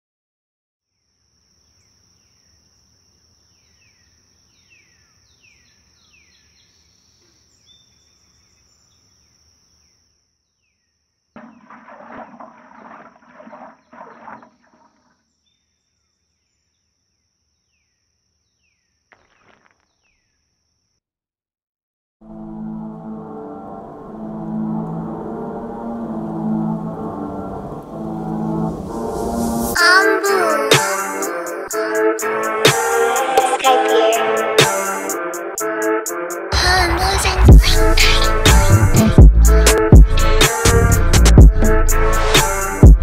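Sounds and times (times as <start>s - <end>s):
water squeezed into bucket: 11.4s - 15.3s.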